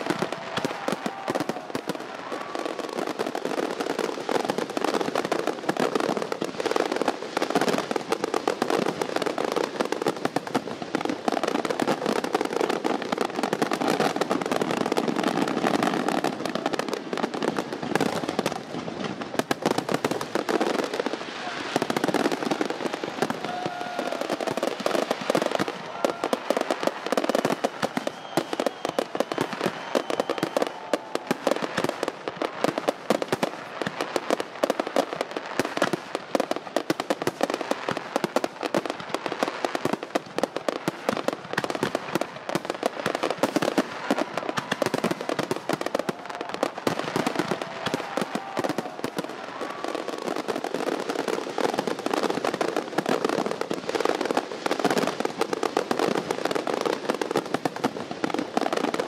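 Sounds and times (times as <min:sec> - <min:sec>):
fireworks popping and crackling: 0:00.0 - 0:59.0.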